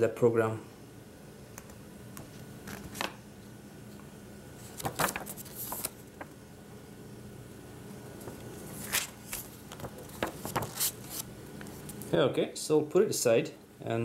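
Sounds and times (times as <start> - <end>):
paper rustling and crinkling: 4.6 - 6.4, 8.2 - 12.0.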